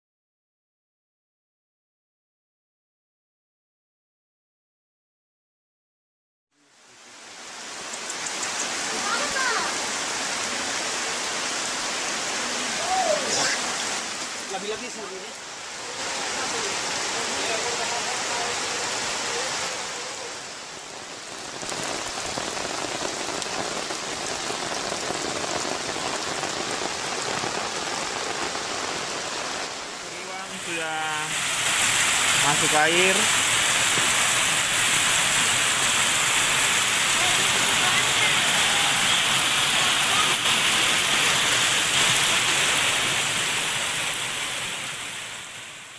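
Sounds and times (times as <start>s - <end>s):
heavy rain falling: 6.6s - 45.9s
rush of water: 6.6s - 45.9s.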